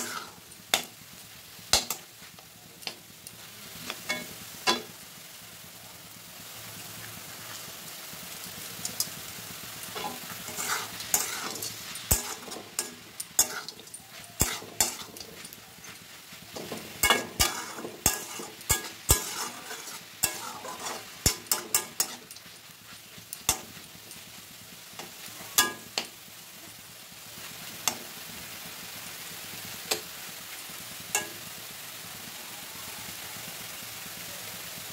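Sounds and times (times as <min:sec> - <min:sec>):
spatula scraping wok: 0:00.0 - 0:05.0, 0:08.9 - 0:26.8
frying sizzle: 0:00.0 - 0:34.9.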